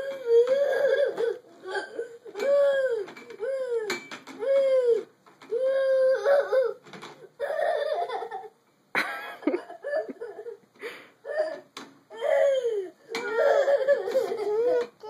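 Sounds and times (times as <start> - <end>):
toddler laughing and squealing: 12.2 - 15.0.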